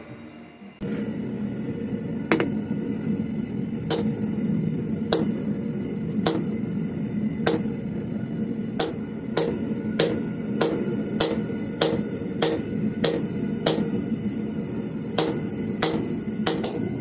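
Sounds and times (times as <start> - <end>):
low hum: 0.0 - 17.0
hammer striking metal on anvil: 2.3 - 2.6, 3.9 - 4.2, 5.1 - 5.5, 6.2 - 6.6, 7.4 - 7.8, 8.8 - 14.2, 15.0 - 17.0.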